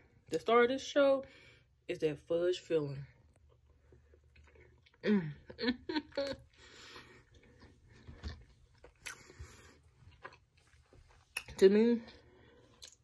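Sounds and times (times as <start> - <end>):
chewing with wet mouth clicks: 3.3 - 5.0, 7.3 - 11.6, 12.7 - 13.0.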